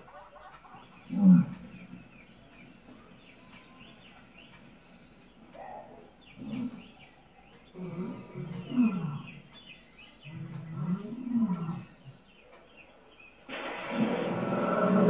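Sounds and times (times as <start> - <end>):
small birds chirping: 0.0 - 15.0
low animal grunt: 5.6 - 7.0, 7.7 - 9.4, 10.2 - 11.9.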